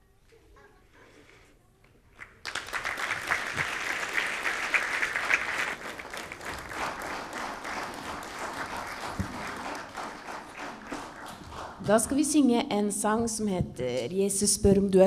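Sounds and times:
audience clapping: 2.1 - 12.3.

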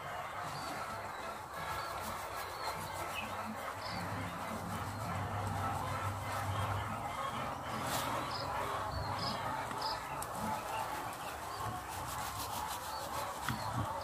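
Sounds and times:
bird chirping: 0.0 - 14.0
outdoor background noise: 0.0 - 14.0.

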